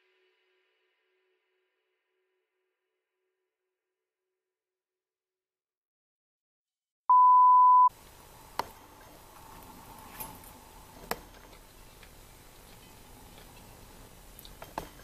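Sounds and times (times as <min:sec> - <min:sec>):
electronic beep: 0:07.1 - 0:07.9.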